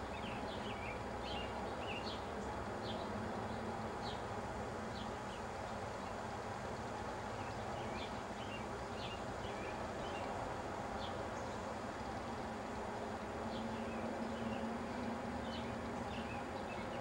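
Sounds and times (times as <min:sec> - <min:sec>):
steady hiss and hum: 0:00.0 - 0:17.0.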